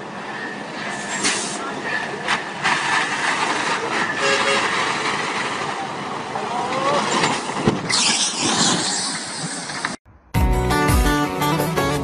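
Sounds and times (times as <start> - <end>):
truck engine and road noise: 0.0 - 12.0.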